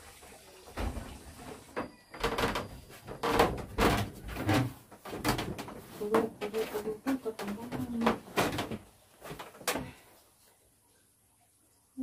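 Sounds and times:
knocks and clunks: 0.7s - 10.0s.

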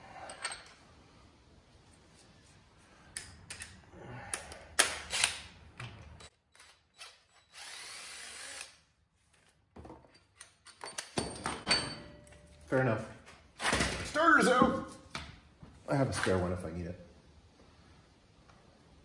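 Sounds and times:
cordless drill spinning: 6.5s - 8.8s.

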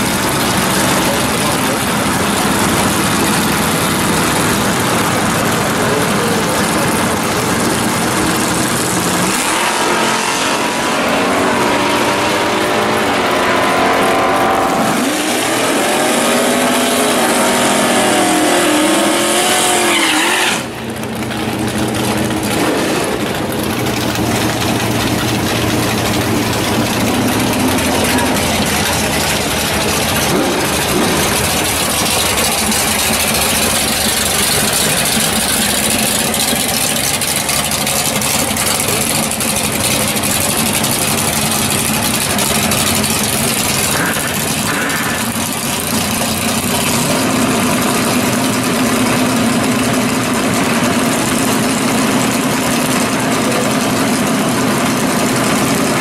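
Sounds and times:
car engine idling: 0.0s - 56.0s
drag car engine revving: 0.0s - 56.0s
tyres spinning: 12.6s - 56.0s.

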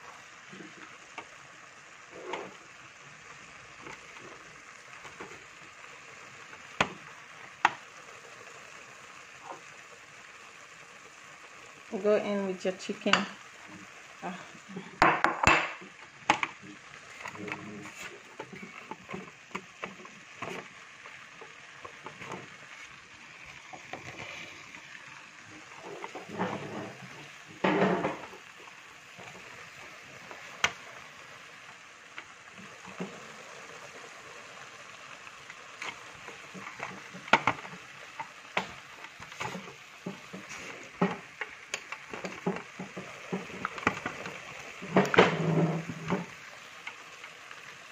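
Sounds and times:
soup bubbling in a pot: 0.0s - 47.9s
utensil knocking against a pot: 15.0s - 16.5s.

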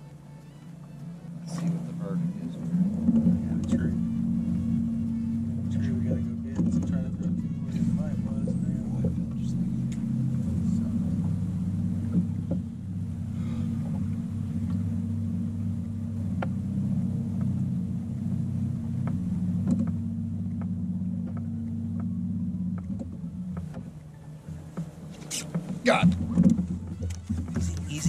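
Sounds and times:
boat motor humming: 0.0s - 28.0s.

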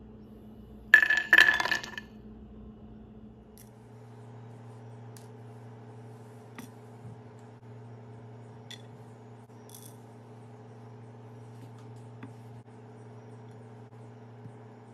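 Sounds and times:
steady low hum: 0.0s - 14.9s.

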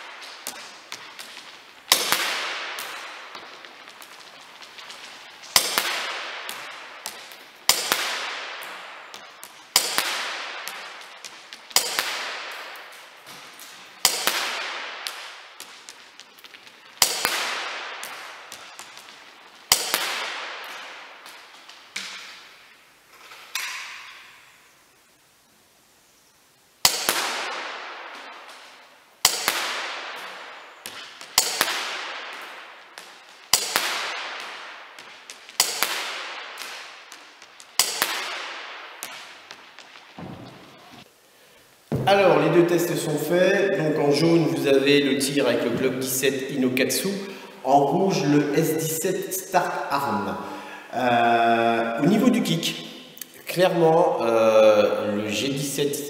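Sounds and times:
airsoft pistol shots: 0.2s - 3.6s, 5.5s - 16.1s, 17.0s - 22.5s, 26.8s - 41.0s.

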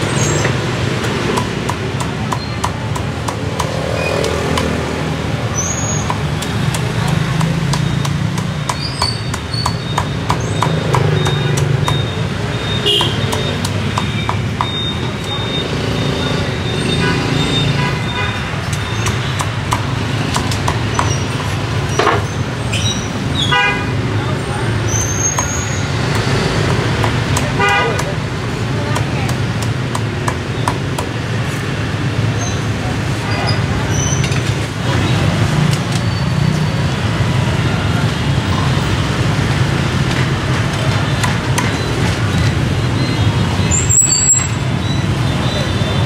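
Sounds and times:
street traffic rumbling: 0.0s - 46.0s
cleaver chopping on wooden block: 0.4s - 5.0s, 5.9s - 12.1s, 13.0s - 14.8s, 18.7s - 22.3s, 25.3s - 31.2s
vehicle horn toot: 12.7s - 13.3s.

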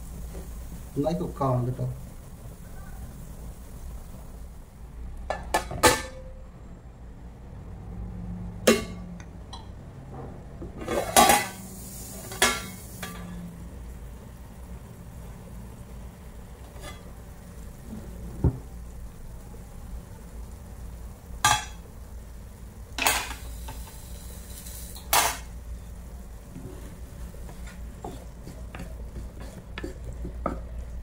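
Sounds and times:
metal spoon scraping frying pan: 16.7s - 17.1s, 26.5s - 30.6s.

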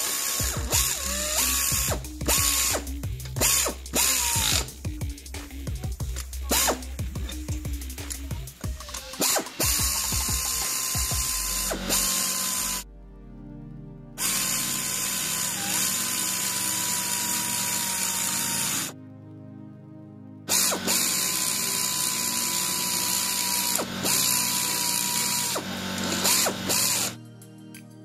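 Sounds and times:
pneumatic ratchet whine: 0.0s - 4.7s, 6.5s - 7.6s, 9.0s - 12.8s, 14.2s - 18.9s, 20.5s - 27.2s.

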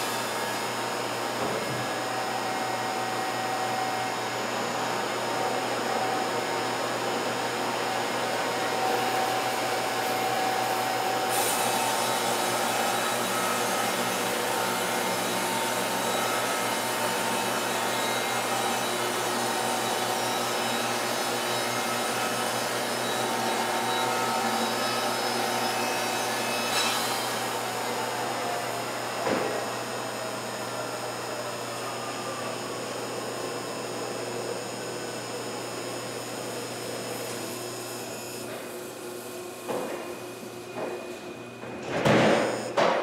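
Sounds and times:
band sawmill sawing a log: 0.0s - 40.7s.

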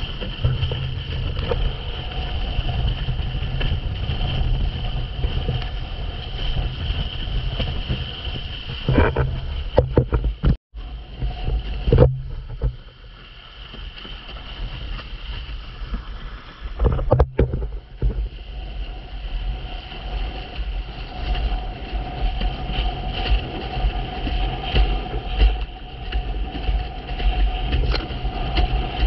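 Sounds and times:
board slapping on waves: 0.0s - 29.0s
water hissing and splashing: 0.0s - 29.0s
wind buffeting microphone: 0.0s - 29.0s.

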